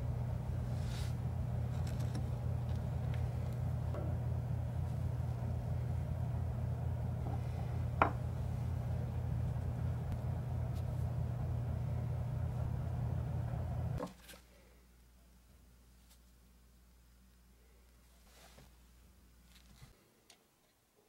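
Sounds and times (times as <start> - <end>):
low mechanical hum: 0.0 - 20.6.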